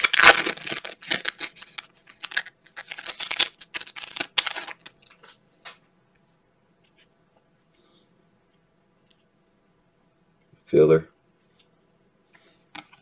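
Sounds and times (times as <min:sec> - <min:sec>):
foil pack tearing and crinkling: 0:00.0 - 0:05.2.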